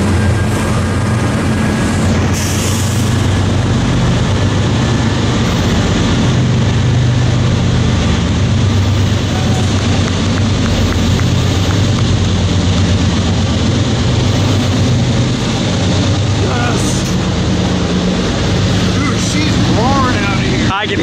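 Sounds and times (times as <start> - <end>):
diesel locomotive passing: 0.0 - 21.0.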